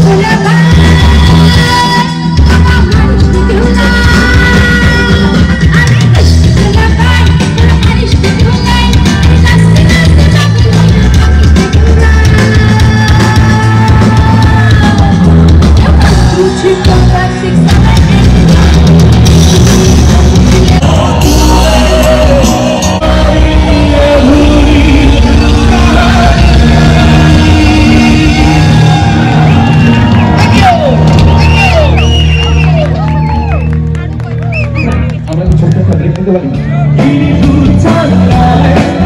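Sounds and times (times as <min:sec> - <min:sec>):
rock band with singer: 0:00.0 - 0:39.0.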